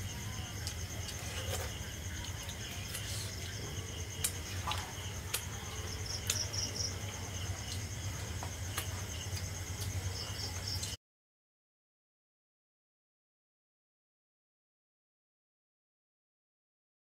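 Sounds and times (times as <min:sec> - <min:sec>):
insects trilling: 0:00.0 - 0:11.0
pulsed insect chirp: 0:00.0 - 0:11.0.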